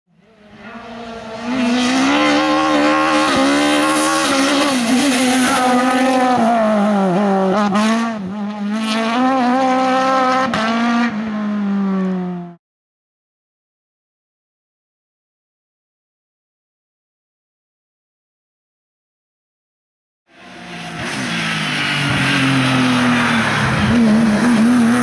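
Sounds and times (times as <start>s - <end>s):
race car engine at high revs: 0.2s - 12.6s, 20.3s - 25.0s.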